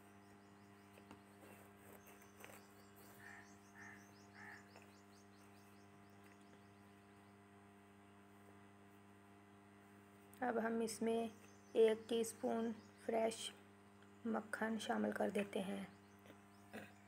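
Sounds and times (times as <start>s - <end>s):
faint bird chirps: 0.0s - 7.5s, 11.1s - 13.5s
low electrical hum: 0.0s - 17.0s.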